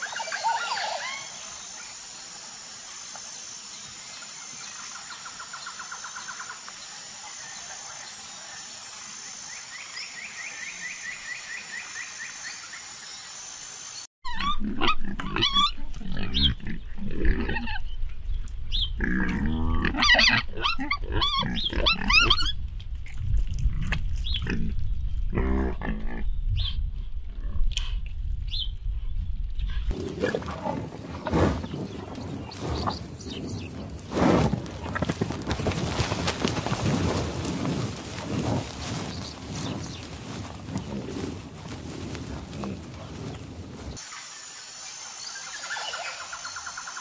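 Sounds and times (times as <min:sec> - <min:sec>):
wild boar squealing: 0:14.3 - 0:17.9, 0:19.0 - 0:22.6.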